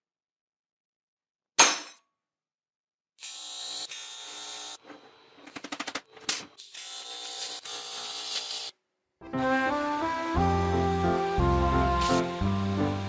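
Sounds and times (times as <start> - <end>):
welding arc buzzing: 3.2 - 4.9, 6.6 - 8.8, 11.4 - 13.0.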